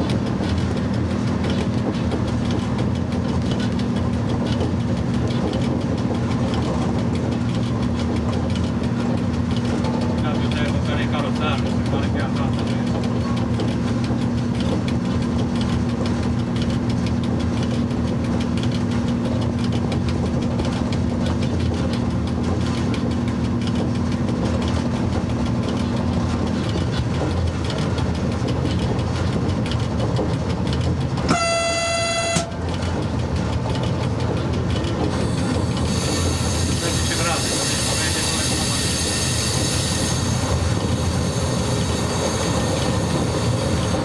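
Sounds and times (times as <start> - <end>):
wheels on rail: 0.0 - 44.0
train horn: 31.3 - 32.7.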